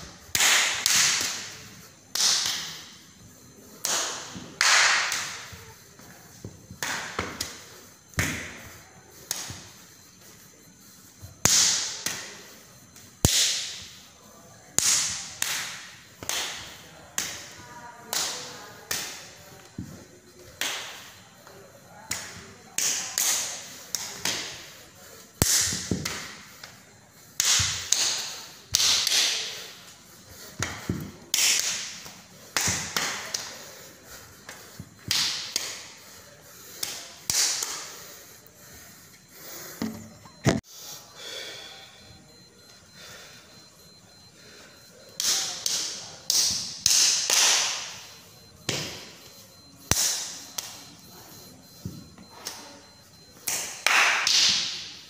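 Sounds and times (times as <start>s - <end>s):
sharp slaps: 0.3s - 2.9s, 3.8s - 5.6s, 6.8s - 9.6s, 11.4s - 12.3s, 13.2s - 14.0s, 14.8s - 17.4s, 25.4s - 26.4s, 27.4s - 29.6s, 34.5s - 35.9s, 36.8s - 37.9s, 45.2s - 48.1s, 49.9s - 50.8s, 53.4s - 55.0s.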